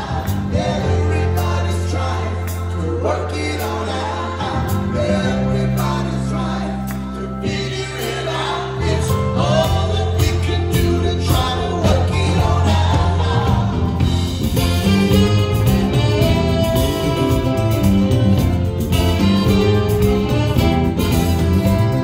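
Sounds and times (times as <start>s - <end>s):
backing vocals: 0.0s - 17.9s
man singing lead vocals: 0.0s - 18.4s
live band playing: 0.0s - 22.0s.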